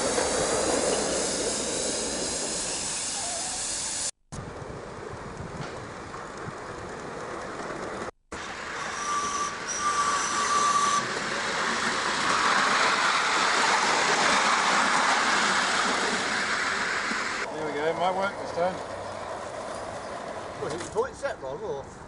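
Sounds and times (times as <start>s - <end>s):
steam locomotive hissing: 0.0s - 4.2s.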